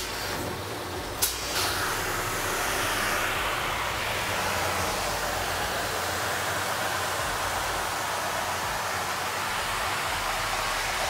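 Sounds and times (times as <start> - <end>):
belt grinder hissing: 0.0 - 11.0
low machine hum: 0.0 - 11.0.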